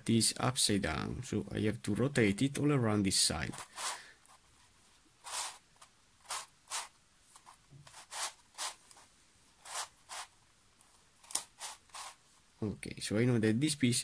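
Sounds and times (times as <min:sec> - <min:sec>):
plastic puzzle scraping and clicking: 0:09.7 - 0:12.2.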